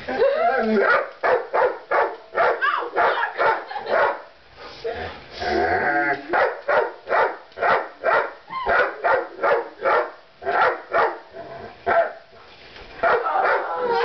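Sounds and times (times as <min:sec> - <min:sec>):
dog barking: 0:00.8 - 0:04.3, 0:06.3 - 0:11.2, 0:11.9 - 0:12.2, 0:13.0 - 0:13.8.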